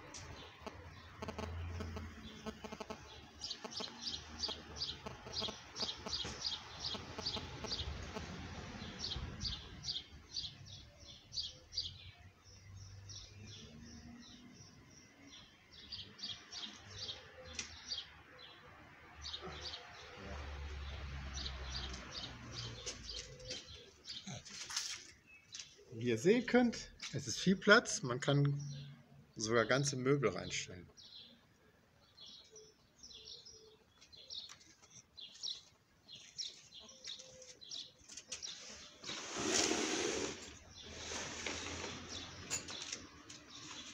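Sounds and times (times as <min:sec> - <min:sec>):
small songbird chirping: 0:00.1 - 0:18.6.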